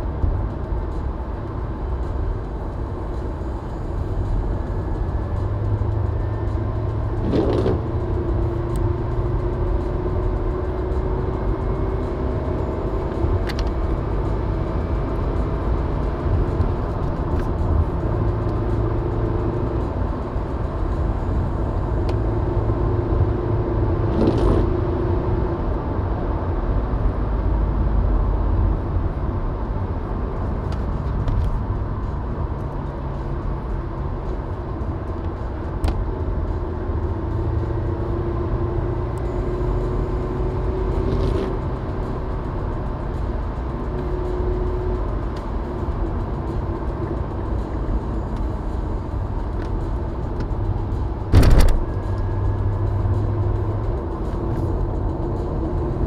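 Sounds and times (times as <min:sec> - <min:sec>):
car engine and tyre rumble: 0:00.0 - 0:56.0.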